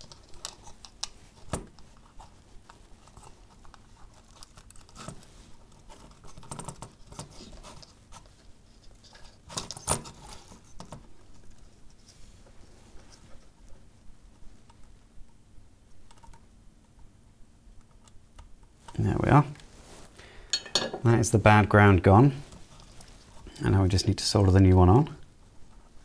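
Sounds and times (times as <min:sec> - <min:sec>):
light clicks and scratching: 0:00.0 - 0:17.1, 0:22.4 - 0:23.7.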